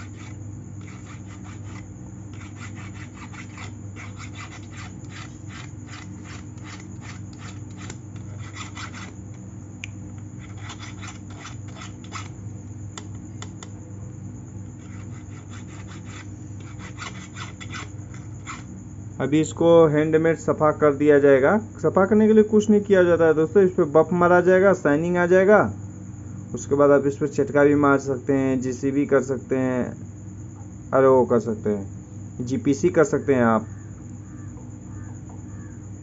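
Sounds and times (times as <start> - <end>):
hand file rasping on metal: 0.0 - 9.3, 10.4 - 12.4, 14.8 - 18.7.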